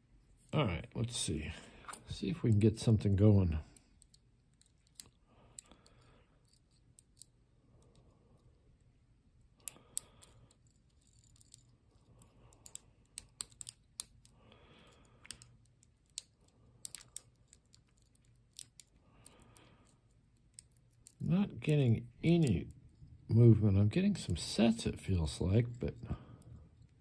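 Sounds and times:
lock pick clicking in padlock: 12.6s - 14.3s, 15.3s - 18.9s.

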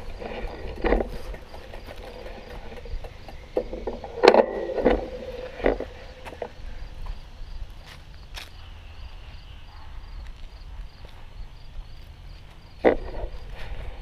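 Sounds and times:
knocks and clatters: 0.0s - 6.6s.

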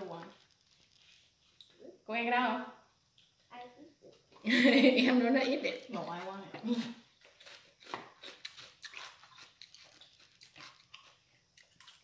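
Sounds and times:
chewing and biting: 7.2s - 12.0s.

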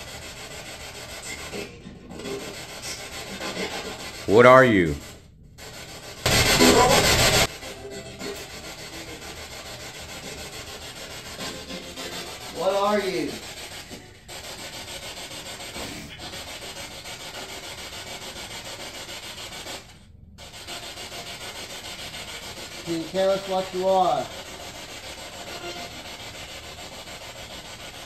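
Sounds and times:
choppy radio static hiss: 1.2s - 5.0s, 6.2s - 9.5s, 11.4s - 16.3s, 22.8s - 24.5s
voice-like fragment: 4.3s - 5.0s, 6.3s - 8.4s.

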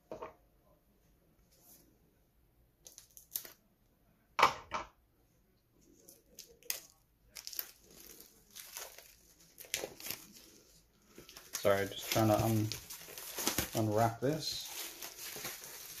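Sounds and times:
plastic wrapping crinkling and tearing: 6.0s - 16.0s.

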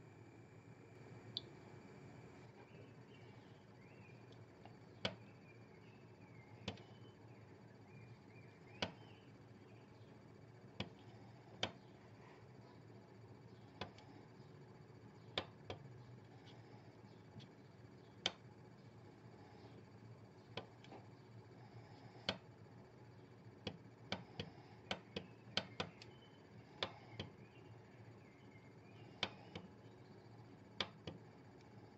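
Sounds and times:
geiger counter clicks: 8.7s - 9.2s, 23.6s - 27.5s.

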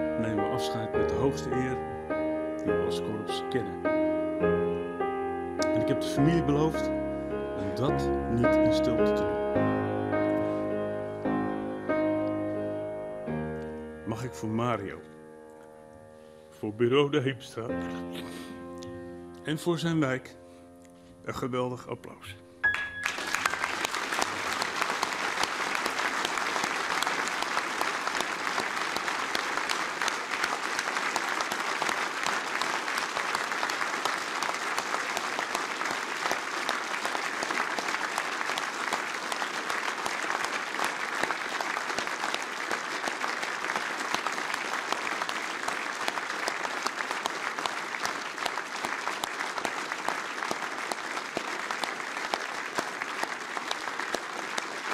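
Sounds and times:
crowd applauding: 22.6s - 54.9s.

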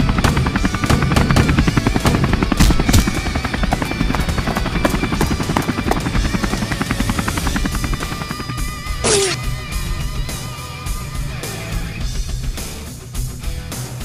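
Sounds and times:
helicopter rotor chopping: 0.0s - 9.8s.

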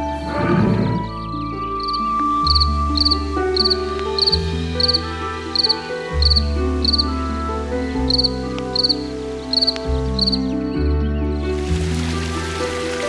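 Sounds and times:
background music with low chords: 0.0s - 13.0s
crickets chirping: 1.7s - 7.2s, 8.1s - 10.4s.

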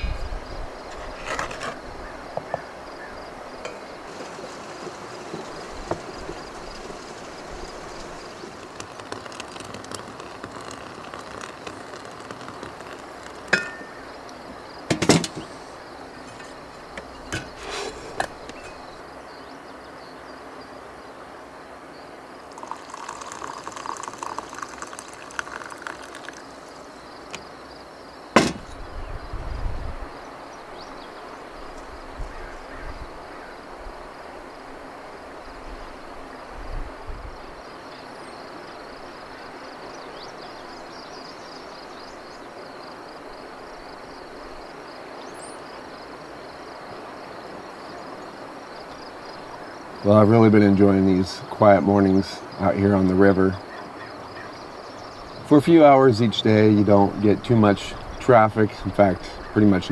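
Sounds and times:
steady outdoor hiss: 0.0s - 59.9s
metal cookware clinks and knocks: 13.5s - 14.0s, 14.9s - 15.6s.

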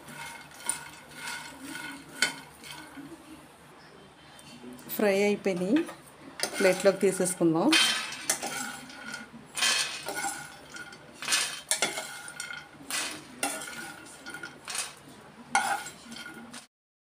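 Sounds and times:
dry nuts rattling on steel tray: 0.0s - 2.9s, 6.4s - 16.6s
spoon scraping frying pan: 0.0s - 3.4s, 5.4s - 16.7s.

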